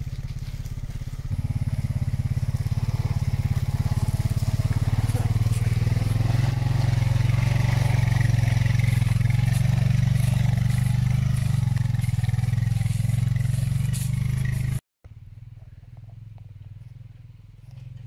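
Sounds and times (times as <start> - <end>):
atv engine running under load: 0.0 - 18.0
faint distant engine: 0.0 - 18.0
tyres scraping and clattering: 2.8 - 14.8.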